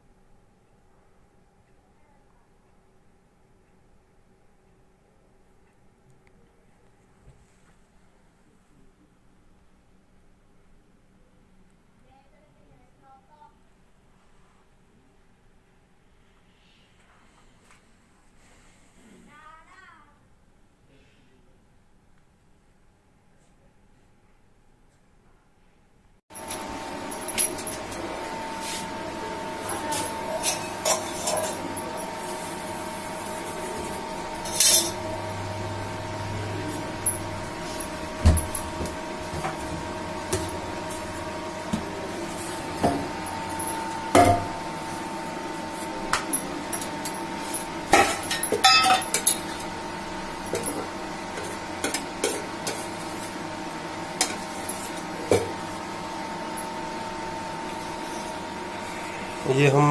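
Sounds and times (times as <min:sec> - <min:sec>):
induction cooktop humming: 0:26.3 - 0:59.9
kitchen utensils clinking: 0:26.4 - 0:53.2, 0:54.2 - 0:56.8.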